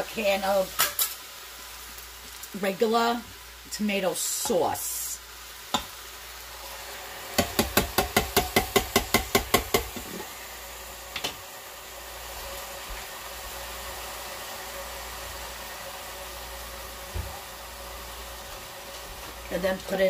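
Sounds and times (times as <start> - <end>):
tin can knocking on metal pot: 7.4 - 9.9.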